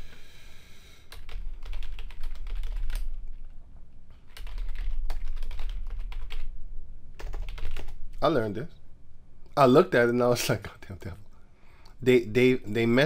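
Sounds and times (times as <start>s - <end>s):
computer keyboard typing: 1.1s - 3.2s, 4.3s - 6.5s, 7.2s - 8.0s.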